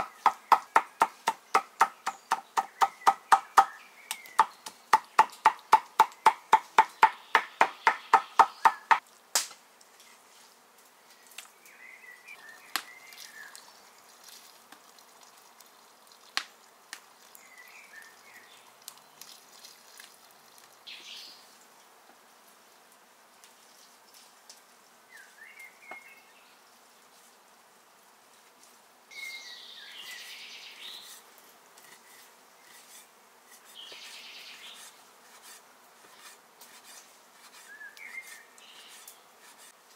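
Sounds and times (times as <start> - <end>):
birds chirping: 0.0 - 9.0
cleaver chopping on wooden board: 0.0 - 9.0.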